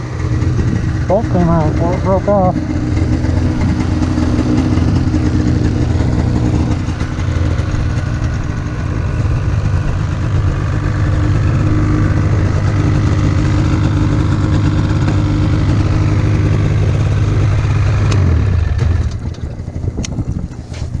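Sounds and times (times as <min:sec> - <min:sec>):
snowmobile engine idling: 0:00.0 - 0:21.0.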